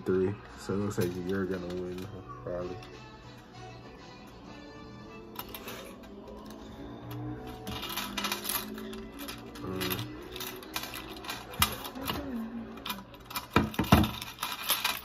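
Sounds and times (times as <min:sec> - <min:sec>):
plastic objects clicking and rattling: 0:00.9 - 0:03.0, 0:07.6 - 0:15.0.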